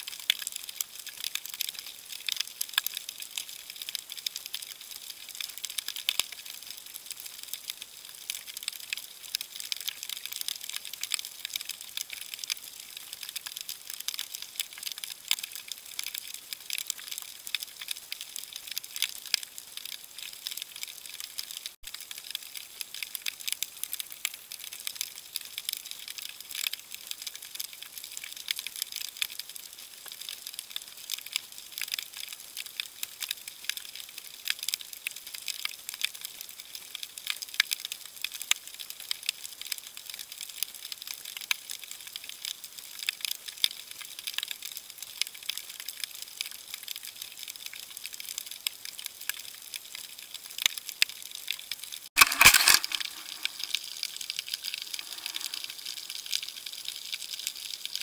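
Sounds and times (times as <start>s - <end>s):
underwater crackling clicks: 52.2s - 56.6s
rush of water: 54.9s - 56.1s.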